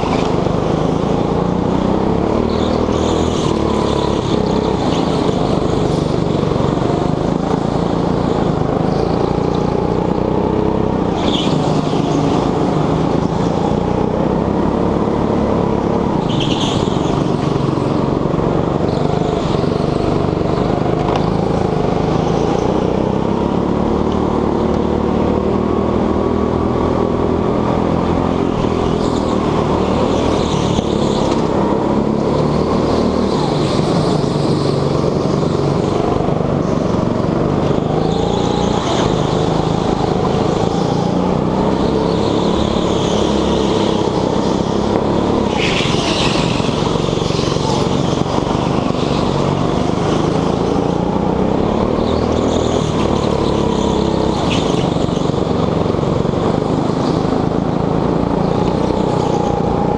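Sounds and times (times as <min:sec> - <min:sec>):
go-kart engine revving: 0:00.0 - 0:59.9.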